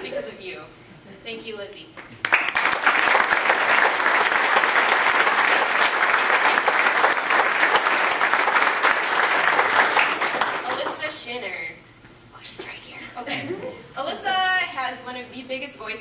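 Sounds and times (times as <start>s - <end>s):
crowd applauding: 2.0s - 11.1s.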